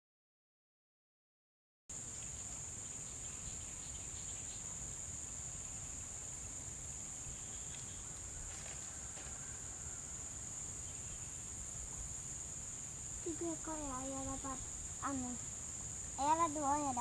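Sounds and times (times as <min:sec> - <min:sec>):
insects chirping: 0:01.9 - 0:17.0
faint ticks: 0:07.6 - 0:09.5.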